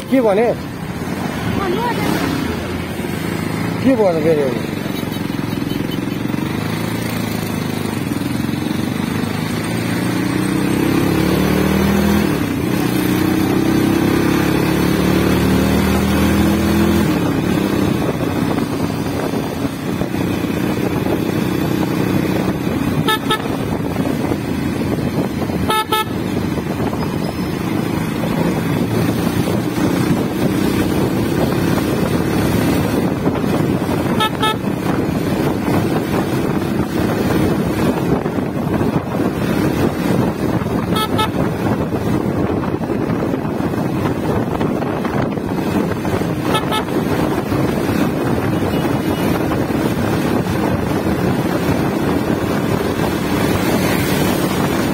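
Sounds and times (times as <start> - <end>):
motorcycle engine accelerating: 0.0 - 54.9
wind noise: 9.6 - 54.9
horn toots: 22.9 - 23.8, 25.6 - 26.3, 34.0 - 35.0, 40.8 - 41.5, 46.4 - 47.0.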